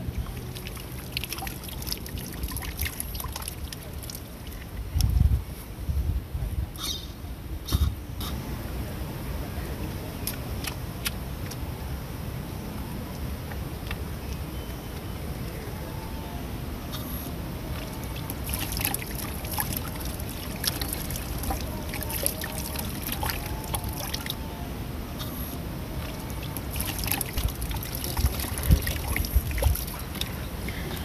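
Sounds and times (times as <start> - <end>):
water splashing into basin: 0.1 - 4.8, 17.7 - 24.4, 26.0 - 30.9
water trickling from tap: 0.1 - 4.8, 17.8 - 24.4, 26.0 - 31.0.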